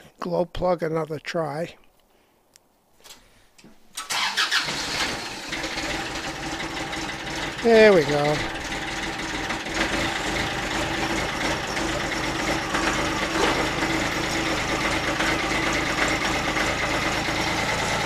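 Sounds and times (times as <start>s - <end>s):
diesel tractor engine idling: 4.1s - 18.0s.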